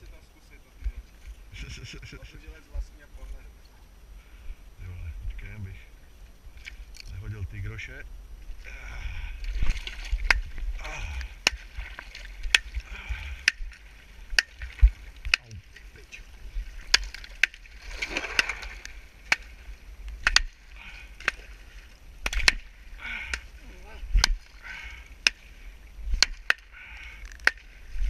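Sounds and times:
wind rumble on microphone: 0.8s - 17.0s, 23.5s - 24.6s, 27.7s - 28.0s
water sloshing and splashing: 8.5s - 28.0s.

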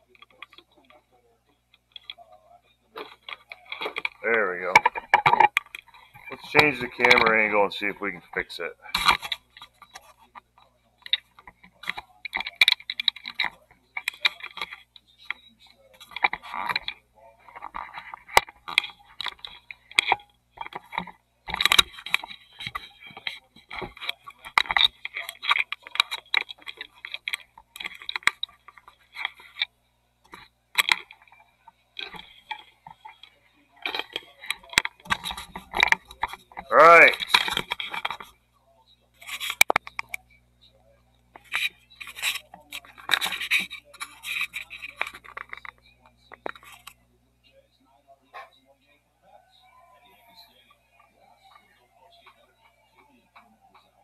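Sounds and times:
camera being handled: 16.0s - 29.7s, 30.3s - 31.4s, 32.0s - 38.3s, 41.4s - 47.0s.

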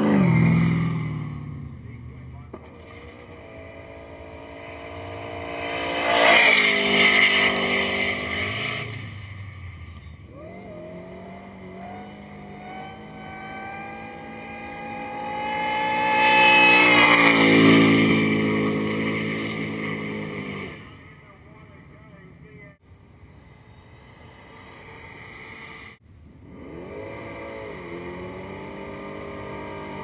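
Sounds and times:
car engine revving high: 2.8s - 9.2s, 10.3s - 21.0s, 24.6s - 30.0s.

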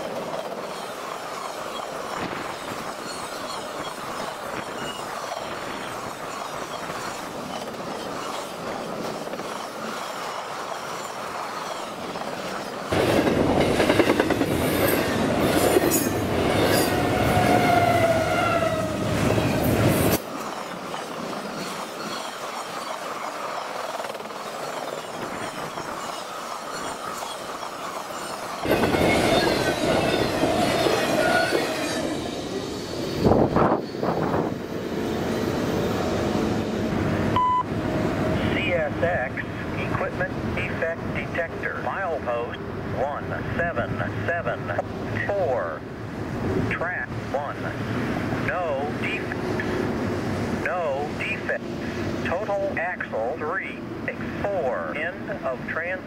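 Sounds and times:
squealing train wheels: 0.0s - 36.8s
train wheels rumbling on track: 0.0s - 56.0s.

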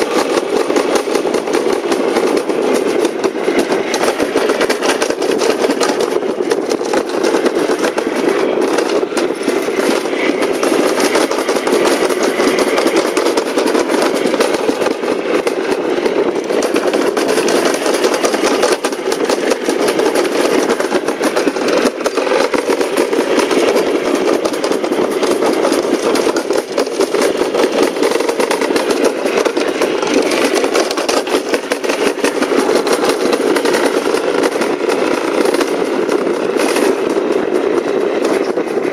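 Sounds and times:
sled rumbling on metal chute: 0.0s - 38.9s.

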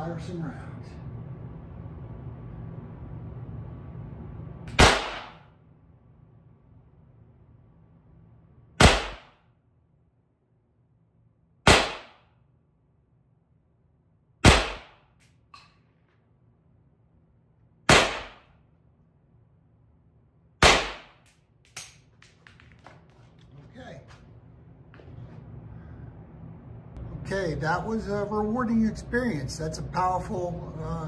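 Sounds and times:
launcher shots with ringing tail: 4.7s - 5.6s, 8.8s - 9.5s, 11.6s - 12.4s, 14.4s - 15.2s, 17.9s - 18.6s, 20.6s - 21.2s.

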